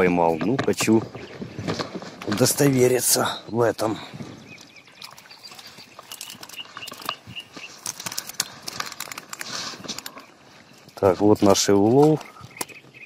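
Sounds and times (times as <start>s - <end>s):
small bird chirping: 4.2s - 8.5s, 9.5s - 13.0s
water pouring and dripping: 4.9s - 7.2s
dry reeds rustling: 5.2s - 12.9s.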